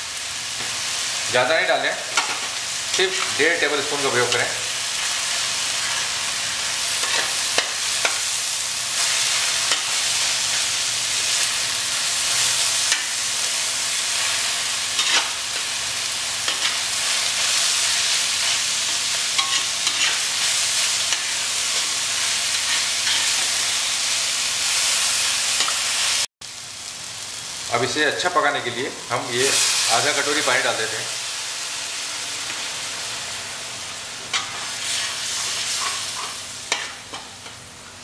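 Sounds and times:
onions frying in oil: 0:00.0 - 0:38.0
metal spatula scraping a pan: 0:15.0 - 0:15.7, 0:18.4 - 0:23.6, 0:34.3 - 0:37.6.

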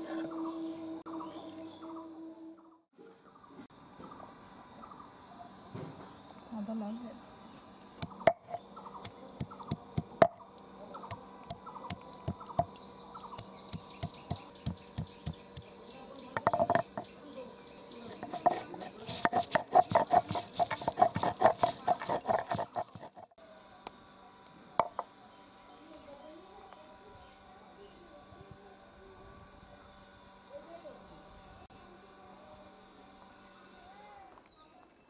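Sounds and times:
stone grinding strokes: 0:07.9 - 0:08.6, 0:11.1 - 0:15.4, 0:18.1 - 0:23.4
stone knocking on stone: 0:08.0 - 0:08.6, 0:16.4 - 0:17.0, 0:18.2 - 0:23.3.

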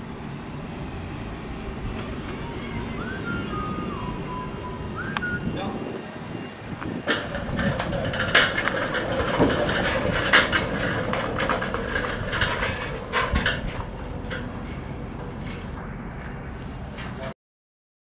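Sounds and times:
steady noisy background: 0:00.0 - 0:17.4
tyres clanking on metal ramps: 0:01.8 - 0:17.4.

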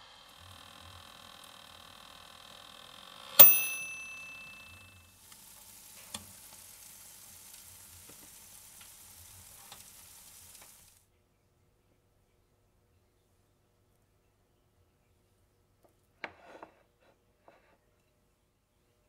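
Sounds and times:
food sizzling with crackles: 0:00.0 - 0:03.4, 0:04.1 - 0:11.0
toaster oven timer bell ding: 0:03.3 - 0:05.0.

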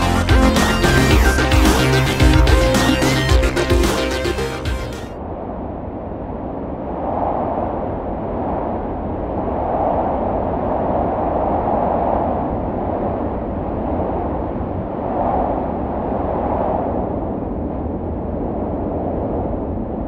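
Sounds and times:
gusting wind: 0:05.1 - 0:20.0.

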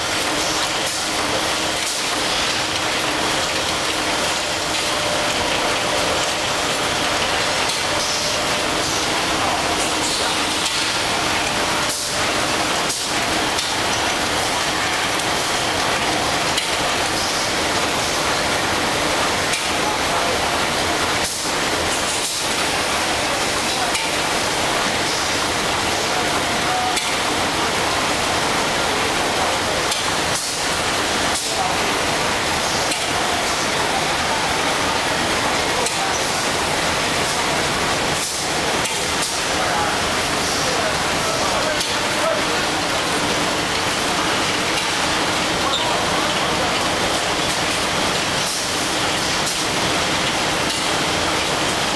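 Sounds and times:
packing machinery running: 0:00.0 - 0:51.9.

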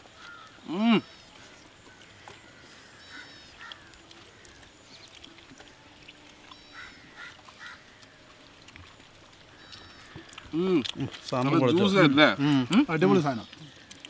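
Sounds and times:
faint bird chirps: 0:00.2 - 0:07.9, 0:09.5 - 0:10.4.

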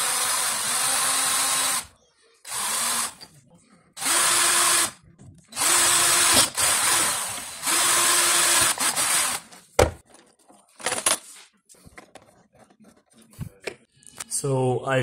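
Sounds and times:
cordless drill whining: 0:00.0 - 0:01.9, 0:02.5 - 0:03.2, 0:04.0 - 0:05.0, 0:05.6 - 0:09.5.

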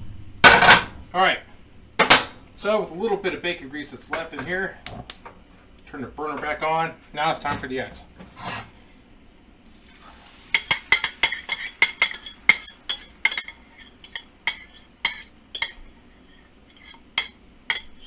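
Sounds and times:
fork clinking on ceramic plate: 0:10.6 - 0:15.9, 0:16.7 - 0:18.0.

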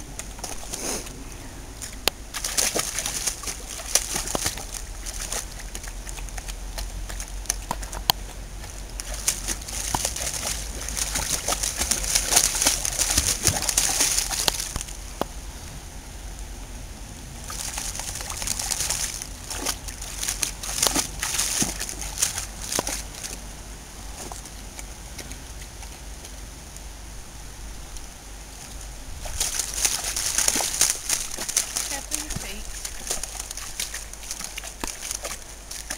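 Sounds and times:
dog splashing in shallow water: 0:01.8 - 0:15.0, 0:17.4 - 0:23.4, 0:29.2 - 0:35.9.

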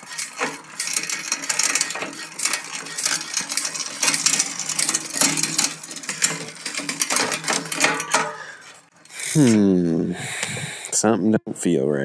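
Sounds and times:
metallic clicking of gear shifting: 0:00.0 - 0:09.2
bicycle chain running: 0:00.0 - 0:09.7.

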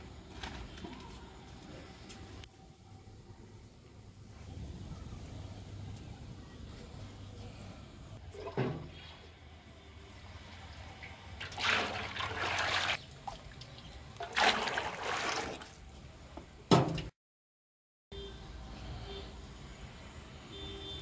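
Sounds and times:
liquid pouring and splashing: 0:08.2 - 0:09.3, 0:10.7 - 0:15.9.

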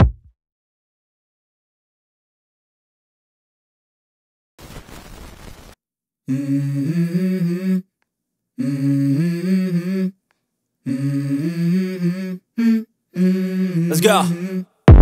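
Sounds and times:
wordless hummed vocal phrases: 0:06.3 - 0:07.9, 0:08.6 - 0:10.2, 0:10.8 - 0:15.0.

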